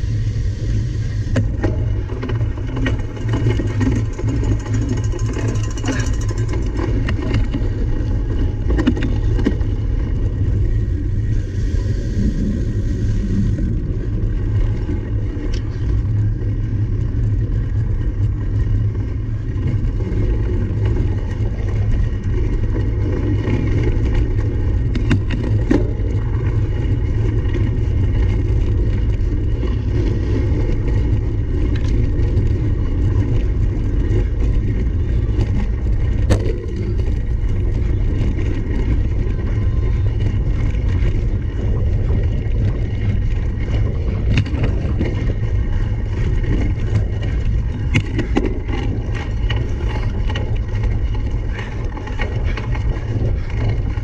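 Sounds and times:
wind rumble on microphone: 0.0s - 54.0s
bike knocks and rattles: 1.3s - 10.2s, 20.6s - 41.6s, 42.2s - 54.0s.

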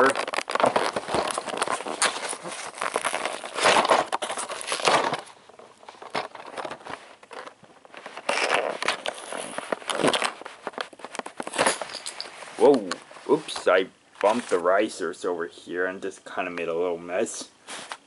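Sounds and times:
cardboard box rustling on carpet: 0.2s - 5.2s.

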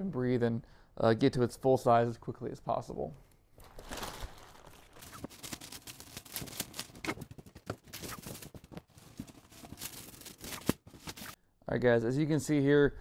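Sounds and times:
plastic wrapping rustling and crinkling: 3.6s - 11.4s.

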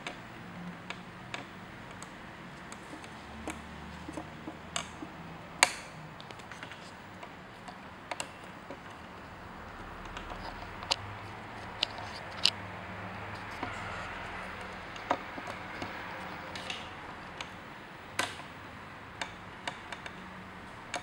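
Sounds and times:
parrot claws and beak tapping: 9.7s - 17.5s.

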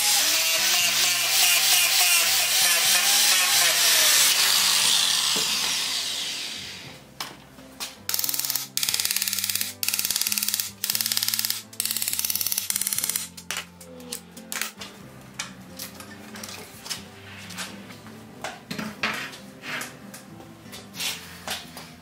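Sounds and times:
angle grinder spinning down: 0.0s - 6.9s
background music: 0.0s - 22.0s.

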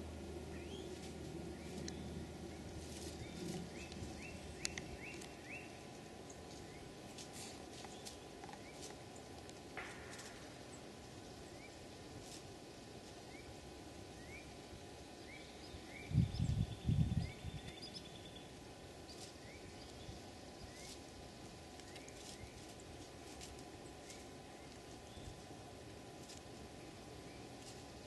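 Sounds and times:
bird peeping: 0.5s - 6.9s
dry leaves rustling clicks: 0.7s - 13.7s, 18.5s - 28.0s.

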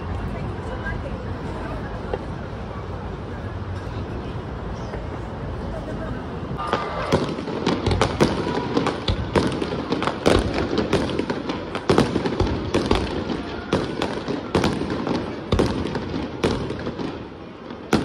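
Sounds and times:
continuous background noise: 0.0s - 18.0s
fireworks bangs: 6.6s - 18.0s.

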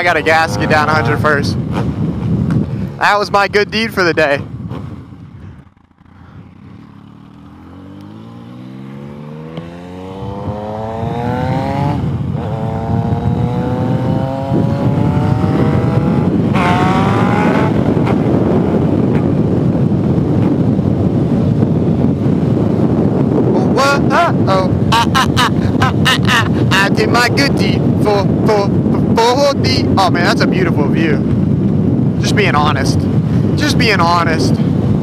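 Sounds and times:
motorcycle accelerating: 0.0s - 35.0s
wind rushing over microphone: 0.0s - 35.0s.

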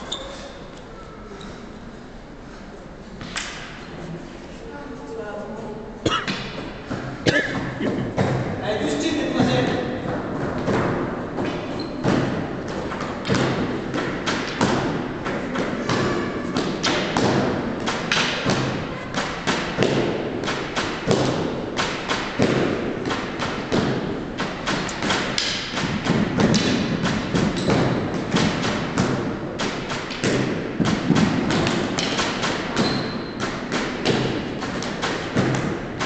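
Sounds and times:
wooden canes striking: 9.3s - 36.0s.

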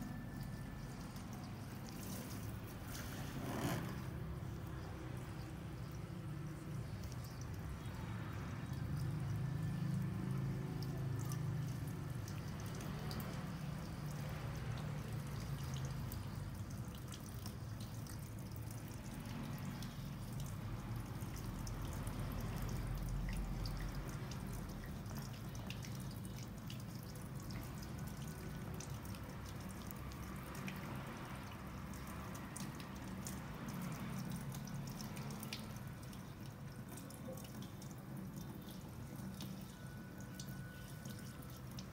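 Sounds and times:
water dripping and trickling: 0.0s - 41.9s.

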